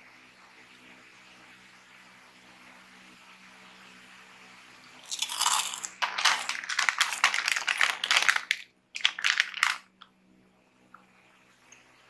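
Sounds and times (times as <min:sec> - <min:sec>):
plastic snack bag crinkling: 0:05.0 - 0:10.0.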